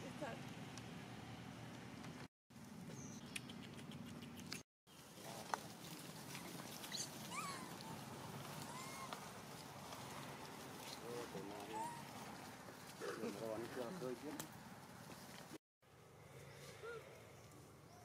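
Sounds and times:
monkey squeaks: 0:08.7 - 0:09.1, 0:11.7 - 0:12.1.

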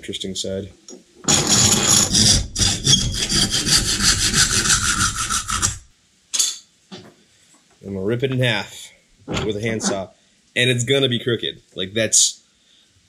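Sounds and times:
handsaw cutting wood: 0:01.2 - 0:05.9.

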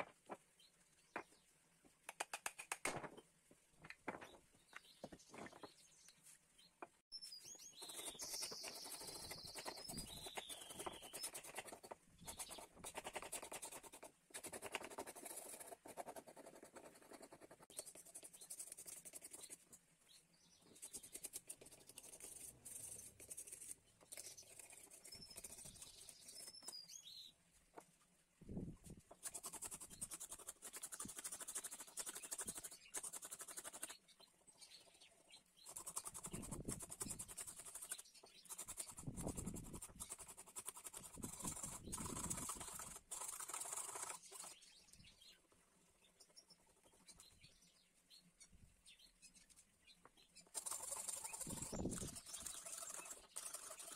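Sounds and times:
scraping paint off wood: 0:50.5 - 0:53.9.

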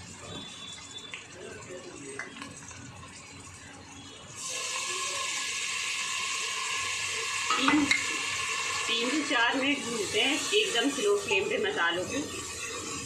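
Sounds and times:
loud sizzle in hot oil: 0:00.0 - 0:13.0.

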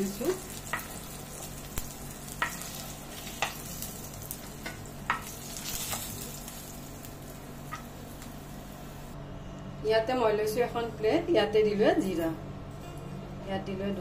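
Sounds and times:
fish sizzling in frying pan: 0:00.0 - 0:09.2.

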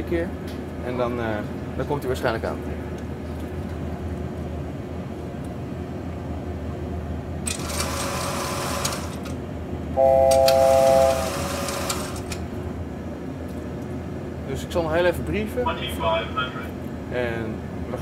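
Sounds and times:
low cockpit hum: 0:09.6 - 0:11.3
loud buzzing tone: 0:10.0 - 0:12.2.

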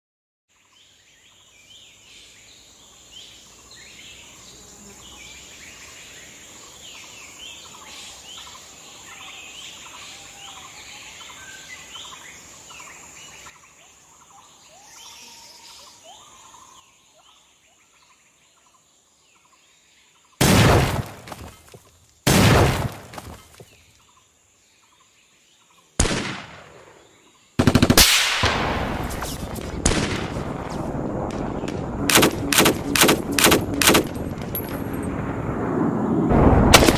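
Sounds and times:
gunshots: 0:20.4 - 0:21.6, 0:22.3 - 0:23.6, 0:26.0 - 0:27.0, 0:27.6 - 0:35.5, 0:36.3 - 0:36.9
birds chirping: 0:28.5 - 0:35.4
high whine: 0:28.5 - 0:36.9.

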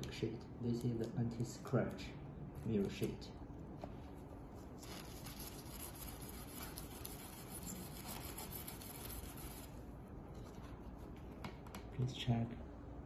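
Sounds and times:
steel wool scrubbing acrylic sheet: 0:04.5 - 0:09.9.

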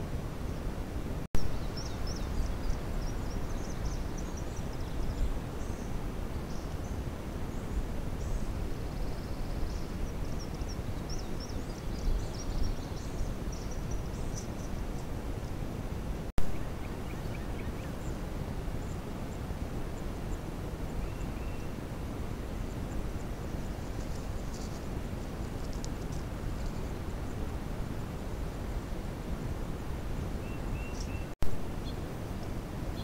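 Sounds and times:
small birds chirping: 0:01.4 - 0:15.8, 0:16.5 - 0:21.8, 0:22.4 - 0:27.6, 0:30.2 - 0:33.0.

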